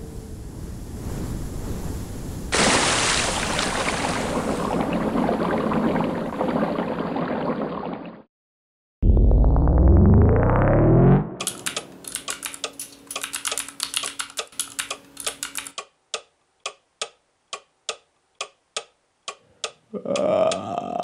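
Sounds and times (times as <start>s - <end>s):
rising tone sweep: 9.0s - 11.4s
laptop keyboard typing: 11.4s - 16.3s.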